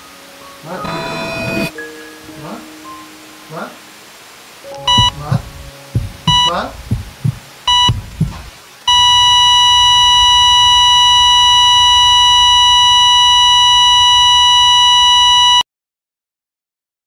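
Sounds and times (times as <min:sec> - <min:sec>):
heart monitor beep: 0:00.8 - 0:01.7, 0:04.8 - 0:15.6
flatline tone: 0:00.8 - 0:01.8, 0:04.8 - 0:07.1, 0:07.7 - 0:15.6
low heartbeat thumps: 0:04.9 - 0:08.6.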